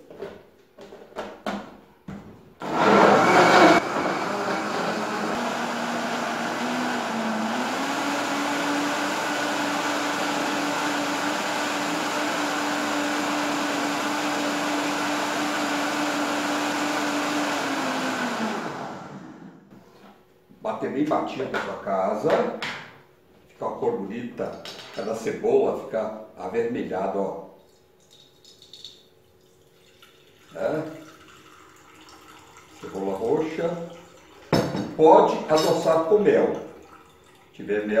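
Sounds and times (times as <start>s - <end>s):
blender motor: 2.6s - 19.7s.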